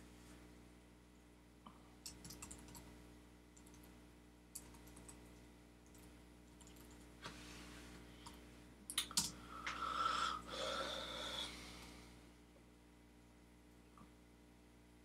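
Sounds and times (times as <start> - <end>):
keyboard keystrokes: 2.0 - 2.8
breathy exhale: 9.4 - 12.1.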